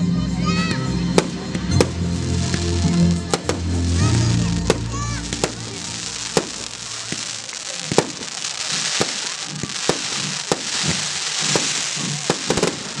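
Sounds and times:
fireworks crackling: 0.4s - 13.0s
firework shells bursting: 4.7s - 13.0s.

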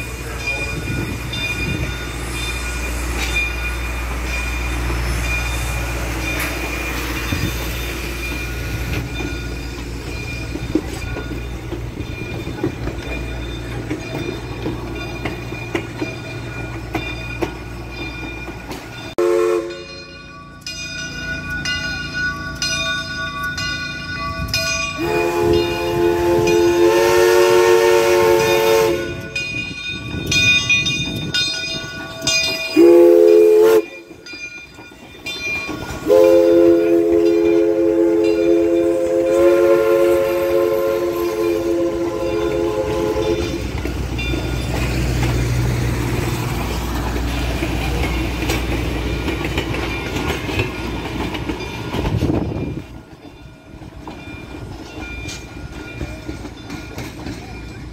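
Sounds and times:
bell ringing: 0.0s - 26.8s, 28.4s - 39.1s
steam locomotive chime whistle: 0.0s - 45.3s
train rumbling past: 0.0s - 57.9s
wheels clicking on rail joints: 0.0s - 57.9s.

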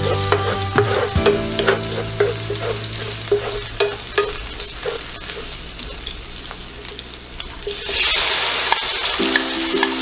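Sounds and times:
spatula knocking and scraping pan: 0.0s - 6.1s
garlic sizzling in oil: 0.0s - 10.0s.

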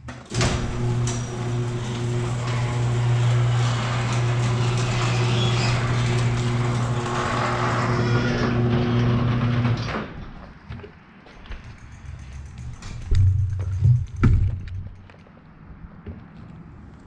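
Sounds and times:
door rattling in tracks: 0.2s - 10.3s, 11.4s - 15.1s
garage door motor hum: 0.3s - 10.2s.

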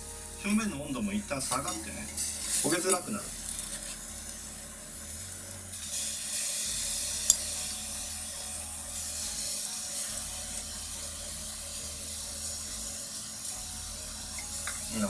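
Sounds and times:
fish sizzling on grill: 0.0s - 15.0s.

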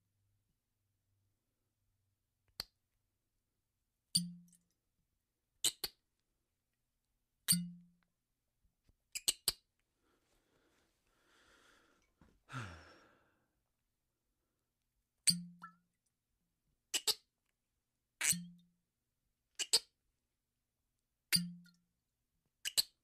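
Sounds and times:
cork clicking on bottle: 18.2s - 18.5s
cork popping from bottle: 18.2s - 18.5s.

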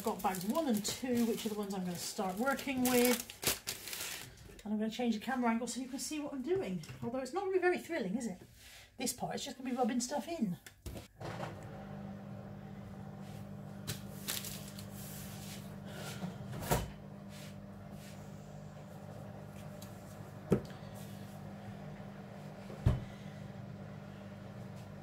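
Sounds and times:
knocks and bumps in kitchen: 10.9s - 11.6s, 20.4s - 20.8s, 22.6s - 23.2s.

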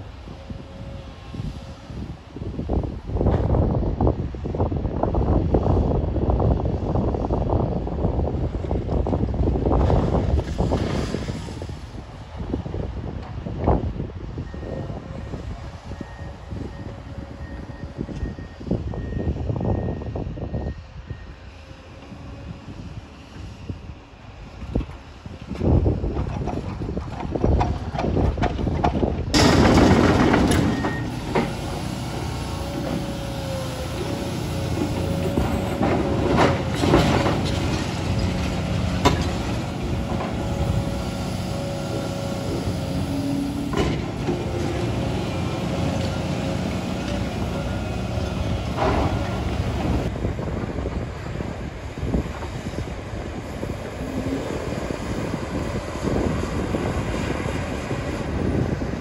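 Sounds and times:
excavator engines rumbling: 0.0s - 10.8s, 11.4s - 59.0s
hydraulic whine: 29.4s - 59.0s.

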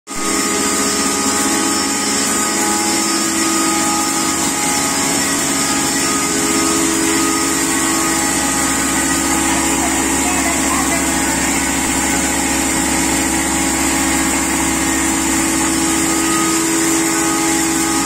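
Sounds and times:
grinding mill humming: 0.1s - 18.0s.

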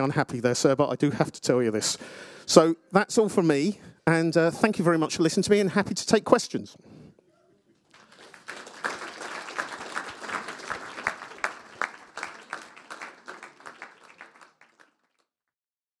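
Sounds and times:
audience applauding: 7.8s - 15.3s.

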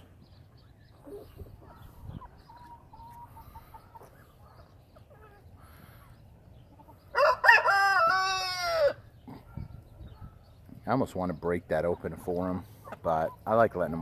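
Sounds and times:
faint flock sounds: 0.0s - 7.3s, 8.8s - 14.0s
rooster crowing: 7.1s - 9.0s.

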